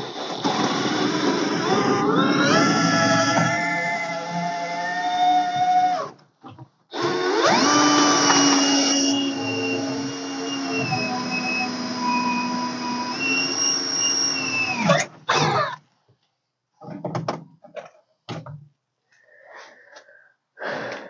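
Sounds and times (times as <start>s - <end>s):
cordless drill motor whine: 7.0s - 14.9s.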